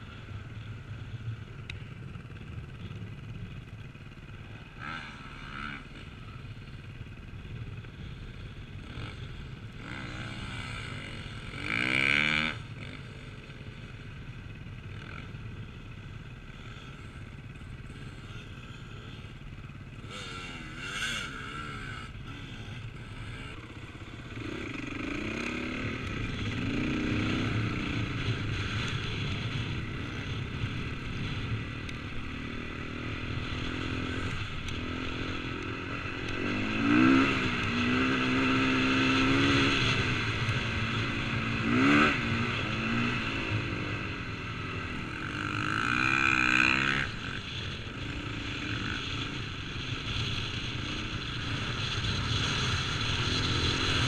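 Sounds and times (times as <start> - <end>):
dirt bike engine revving: 4.3 - 6.8, 7.6 - 14.0, 14.6 - 54.0.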